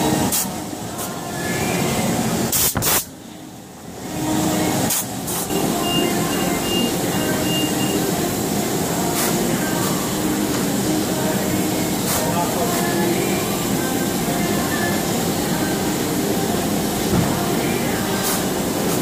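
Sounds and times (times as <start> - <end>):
short high beeps: 5.5 - 8.1.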